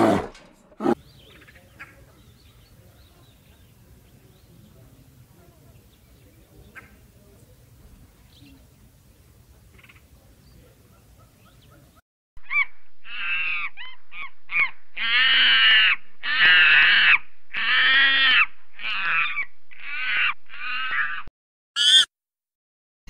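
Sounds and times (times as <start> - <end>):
animal calling loudly: 12.4 - 22.1.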